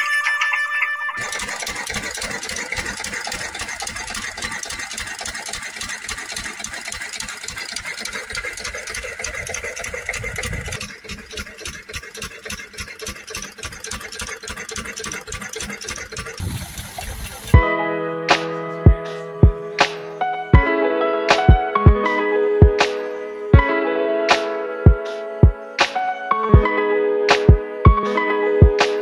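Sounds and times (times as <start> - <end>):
diesel engine chugging: 1.2 - 17.6.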